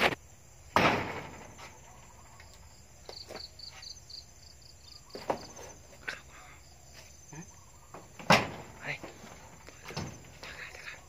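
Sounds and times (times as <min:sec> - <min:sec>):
cricket chirping: 0:00.0 - 0:11.0
soft knocks and rustles: 0:05.1 - 0:06.0, 0:07.9 - 0:10.7.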